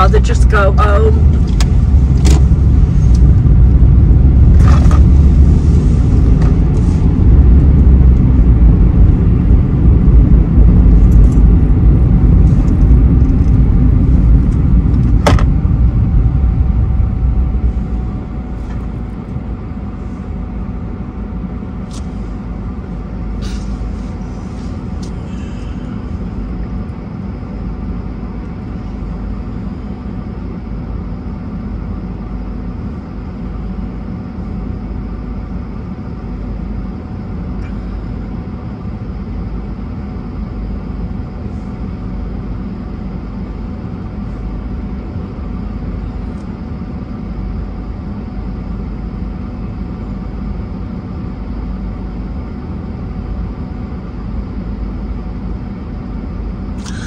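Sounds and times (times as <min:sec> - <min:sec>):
car cabin rumble: 0:00.0 - 0:20.2
engine idling hum: 0:00.0 - 0:57.0.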